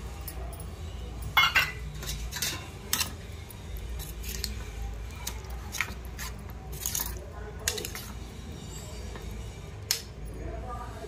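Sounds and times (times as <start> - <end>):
spoon clinking against pot: 1.3 - 3.2.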